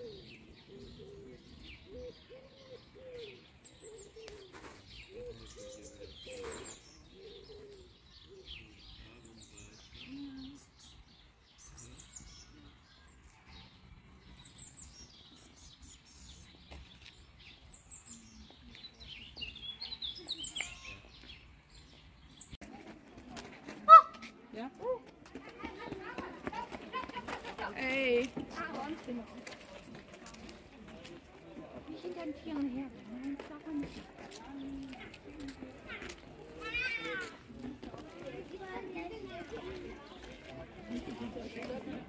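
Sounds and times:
small birds chirping: 0.0s - 42.0s.

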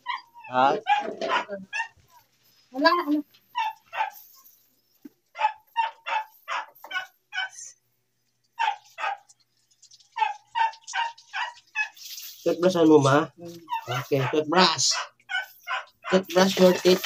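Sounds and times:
dog yapping: 0.0s - 2.3s, 3.5s - 4.4s, 5.3s - 7.8s, 8.6s - 9.4s, 10.1s - 12.0s, 13.6s - 16.2s.

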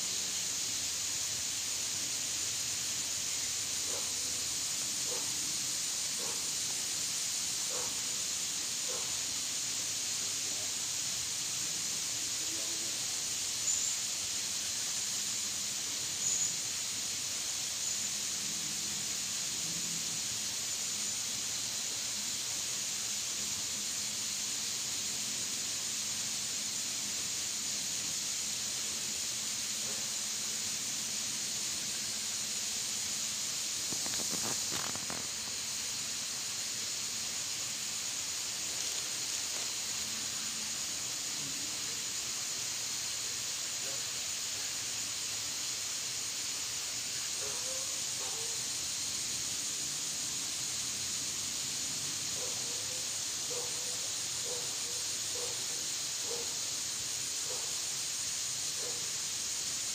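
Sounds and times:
insect chorus drone: 0.0s - 59.9s
brief rustle: 33.8s - 35.5s.

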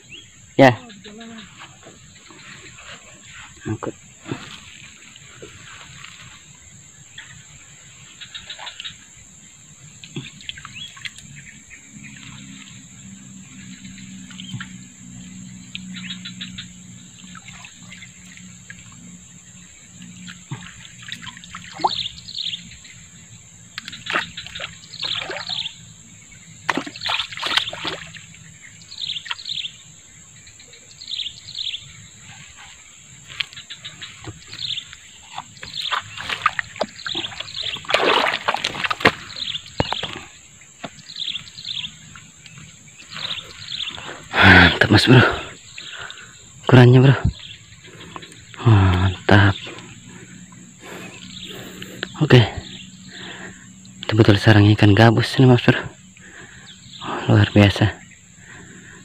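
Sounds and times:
birds chirping: 0.0s - 59.0s
water sloshing and trickling: 0.0s - 59.0s
reeds being pulled from water: 35.3s - 40.2s.

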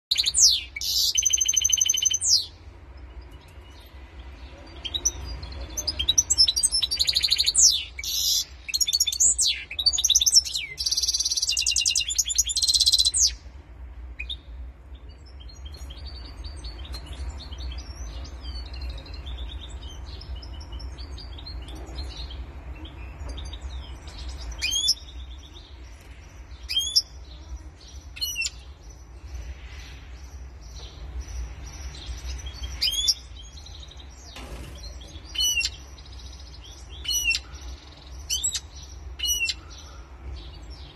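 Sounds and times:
bird twittering song: 0.0s - 40.9s.

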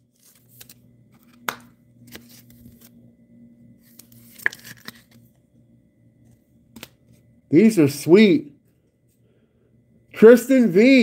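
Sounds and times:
cards and sleeves rustling: 0.0s - 3.0s, 3.7s - 5.4s
faint low hum: 0.0s - 11.0s.

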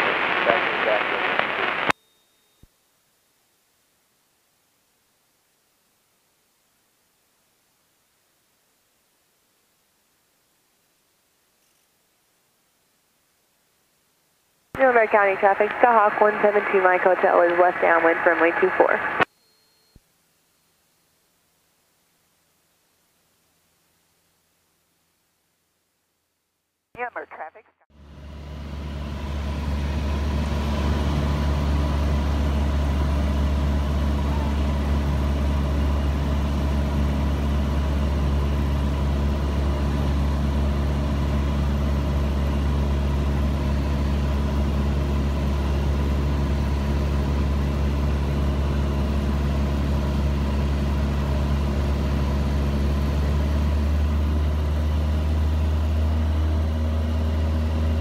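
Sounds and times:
aircraft engine and propeller drone: 14.8s - 19.8s, 28.0s - 58.0s.

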